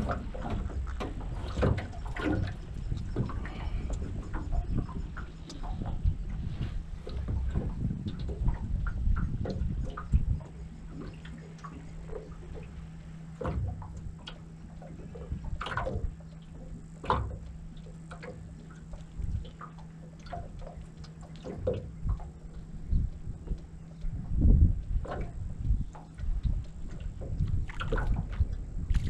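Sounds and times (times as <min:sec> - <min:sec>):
faint low hum: 0:00.0 - 0:29.0
water slapping against hull: 0:00.0 - 0:29.0.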